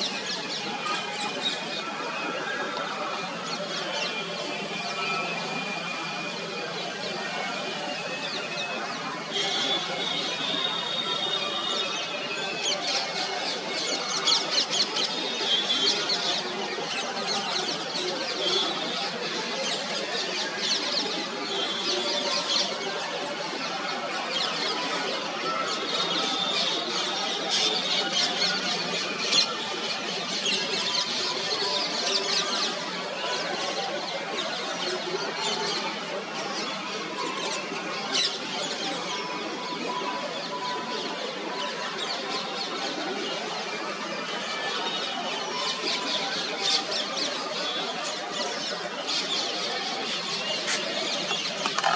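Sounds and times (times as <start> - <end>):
steady background din: 44.6 - 51.9.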